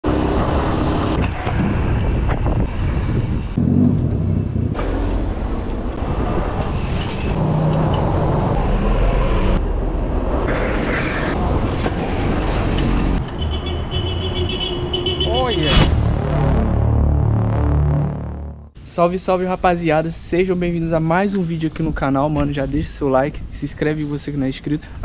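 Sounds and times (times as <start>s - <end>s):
street traffic: 0.0s - 25.0s
wind buffeting: 0.3s - 15.8s.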